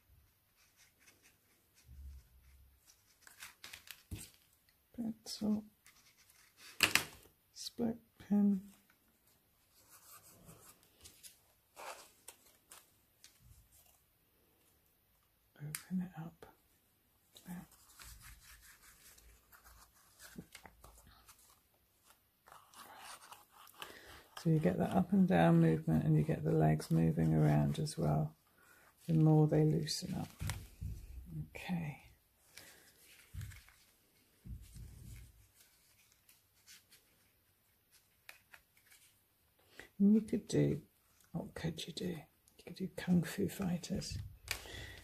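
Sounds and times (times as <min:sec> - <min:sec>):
thin card rustling: 0:00.5 - 0:07.3, 0:08.6 - 0:14.0, 0:17.4 - 0:25.4, 0:28.6 - 0:31.3, 0:32.4 - 0:39.4.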